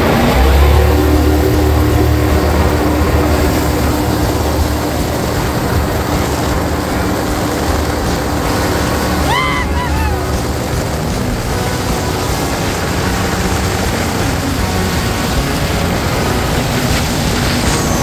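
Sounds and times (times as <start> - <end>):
helicopter drone: 0.0 - 18.0
call sweeping in pitch: 8.6 - 13.2.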